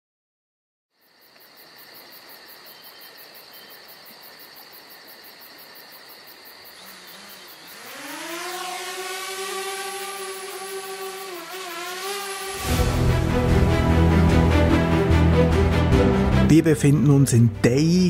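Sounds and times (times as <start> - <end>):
crickets chirping: 0.9 - 12.7
motor whine spinning up: 6.8 - 13.1.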